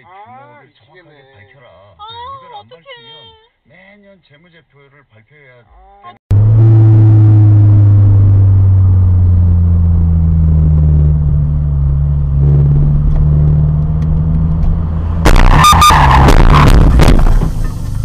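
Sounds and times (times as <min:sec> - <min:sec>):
low drone inside moving car: 0:06.3 - 0:18.0
car crash clatter: 0:12.6 - 0:18.0.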